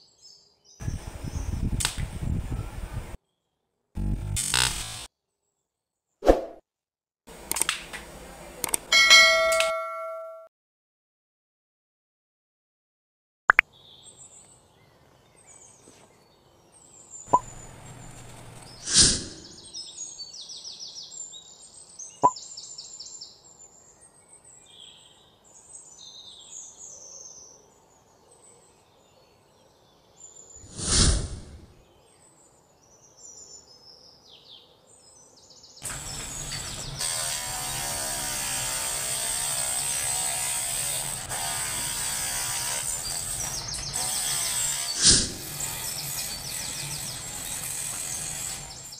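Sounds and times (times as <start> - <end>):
rotary tool grinding wood: 4.0 - 5.1, 17.4 - 19.6, 35.8 - 48.9
sharp clicks: 7.4 - 8.0, 8.6 - 8.9
loud brief whooshes: 18.8 - 19.5, 30.6 - 31.7.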